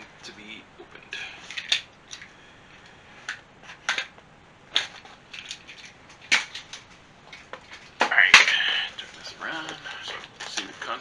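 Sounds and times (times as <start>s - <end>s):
paper sheet crackling and rustling: 9.0s - 11.0s.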